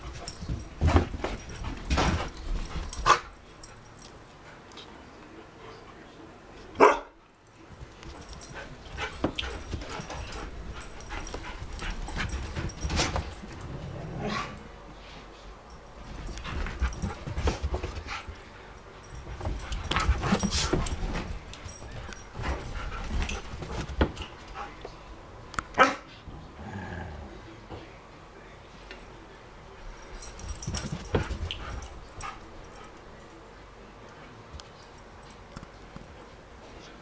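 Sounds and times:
paws and bodies thudding on floor: 0:00.0 - 0:03.3, 0:07.8 - 0:13.8, 0:16.0 - 0:18.4, 0:19.0 - 0:25.0, 0:30.2 - 0:32.9.

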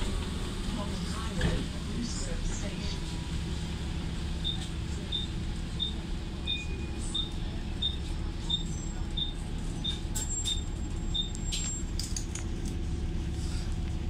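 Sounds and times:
bus engine and cooling fan hum: 0:00.0 - 0:14.0
high electronic beep: 0:04.4 - 0:11.4.

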